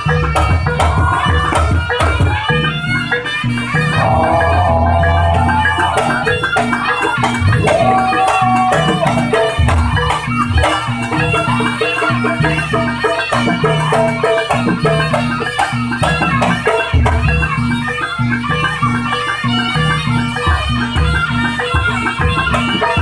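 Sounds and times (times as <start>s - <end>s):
hand drums beating: 0.0s - 23.0s
reed horn melody: 3.9s - 7.0s.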